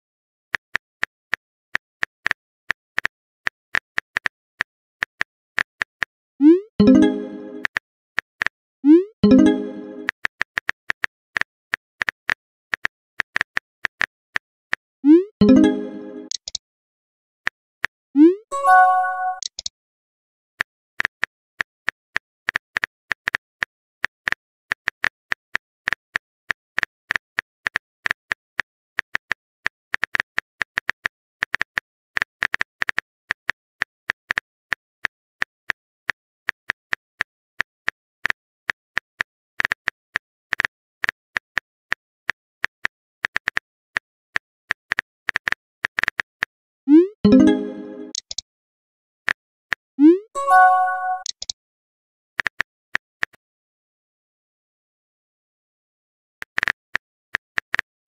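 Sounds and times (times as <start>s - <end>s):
phone keyboard typing clicks: 15.4s - 16.6s, 18.7s - 19.7s, 47.3s - 48.4s, 50.4s - 51.5s.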